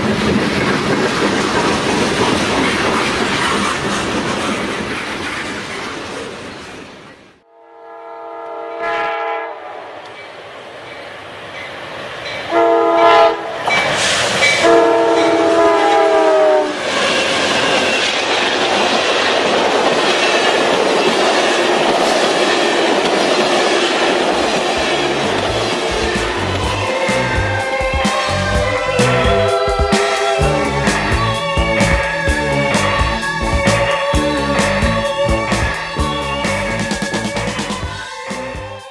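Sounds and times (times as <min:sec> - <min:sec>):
rail clatter: 0:00.0 - 0:07.0, 0:13.6 - 0:16.0, 0:16.8 - 0:38.9
passenger train rushing past: 0:00.0 - 0:38.9
diesel locomotive horn blasts: 0:07.5 - 0:10.1, 0:12.5 - 0:13.6, 0:14.6 - 0:16.8, 0:24.8 - 0:38.0.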